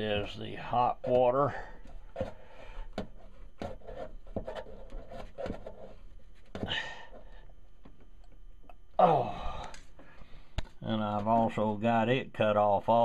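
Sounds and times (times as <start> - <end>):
hand rubbing and knocking in box: 1.0 - 8.2.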